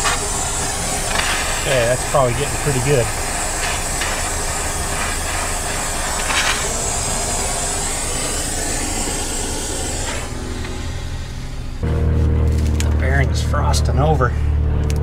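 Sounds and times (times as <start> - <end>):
gas torch flame hissing: 0.0 - 11.8.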